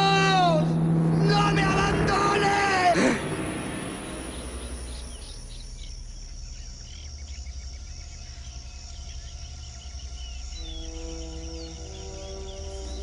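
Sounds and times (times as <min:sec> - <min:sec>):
insects droning: 0:00.0 - 0:13.0
low steady rumble: 0:00.0 - 0:13.0
bird chirps: 0:04.1 - 0:13.0.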